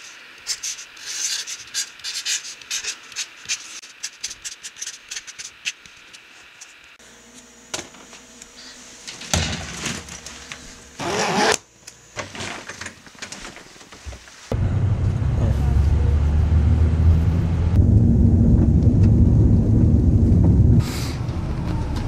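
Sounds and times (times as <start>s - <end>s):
marker squeaking on cardboard: 0.0s - 5.8s
rustling and scraping handling noises: 8.0s - 11.6s, 12.2s - 14.5s.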